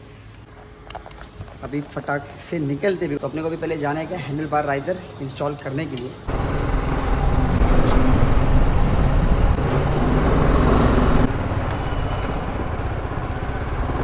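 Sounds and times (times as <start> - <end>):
motorcycle engine rumbling: 6.3 - 14.0.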